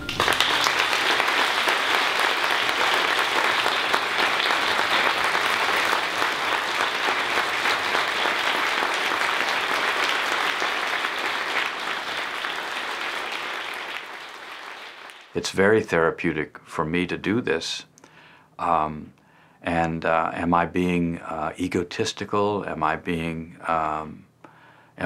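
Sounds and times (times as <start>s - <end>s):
audience applauding: 0.0s - 15.4s.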